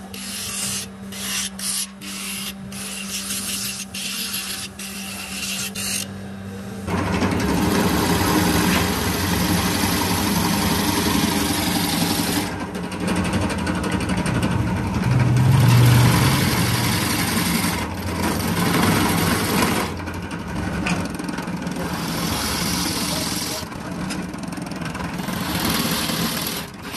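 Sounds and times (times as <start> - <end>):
drill press routing wood: 0.0 - 26.9
sanding drum motor hum: 0.0 - 26.9.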